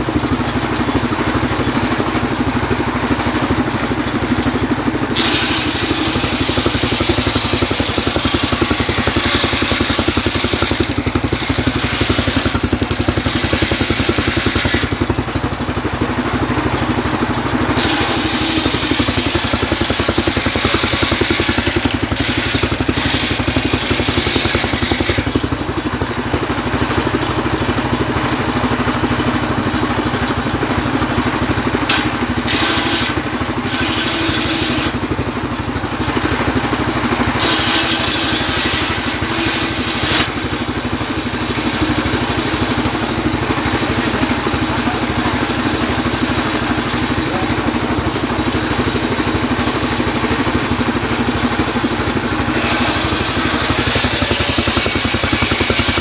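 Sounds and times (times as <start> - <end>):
sawmill engine drone: 0.0 - 56.0
saw blade cutting wood: 3.4 - 15.7, 17.7 - 26.8, 31.8 - 35.3, 37.2 - 56.0.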